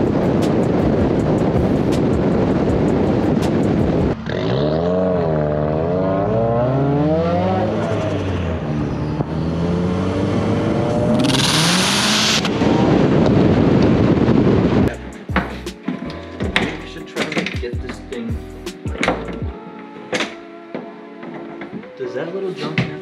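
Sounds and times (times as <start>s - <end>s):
wind rush: 0.0s - 4.2s, 7.7s - 15.0s
car engine accelerating: 2.5s - 14.8s.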